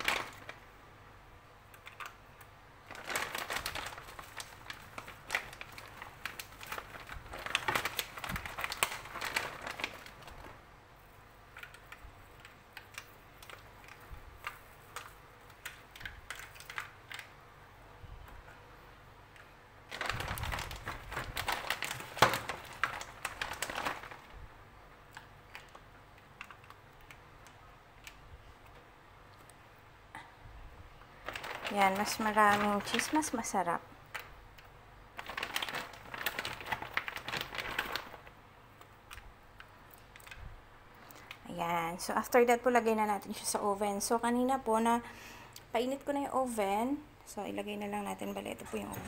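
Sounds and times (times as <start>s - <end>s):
plastic bag crinkling: 0.0s - 0.8s, 1.7s - 10.7s, 11.5s - 17.4s, 19.9s - 24.5s, 31.1s - 40.4s
cheese sprinkling into foil tray: 2.9s - 10.6s, 31.2s - 34.3s, 35.1s - 38.3s.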